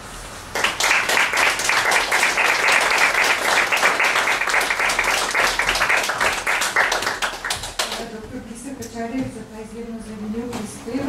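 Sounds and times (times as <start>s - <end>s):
audience applauding: 0.5s - 8.0s.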